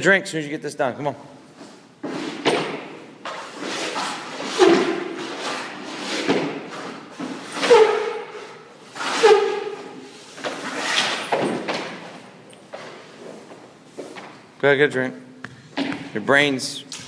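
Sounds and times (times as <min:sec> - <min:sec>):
skate blades scraping ice: 0:03.4 - 0:08.3, 0:08.9 - 0:11.3.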